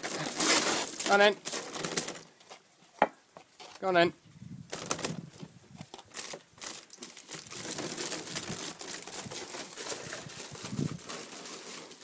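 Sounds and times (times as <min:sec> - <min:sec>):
foil duct crinkling: 0:00.0 - 0:02.4, 0:06.0 - 0:12.0.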